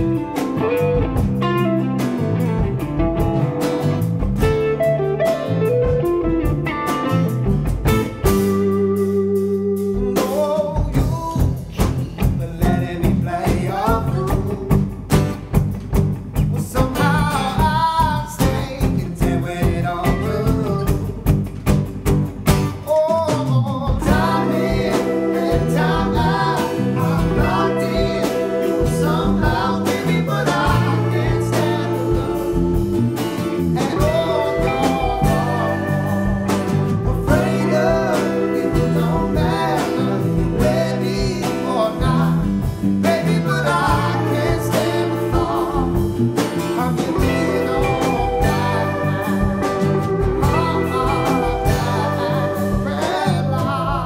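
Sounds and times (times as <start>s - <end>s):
strummed guitars: 0.0s - 54.0s
man singing: 10.0s - 15.0s, 16.6s - 21.3s, 22.8s - 54.0s.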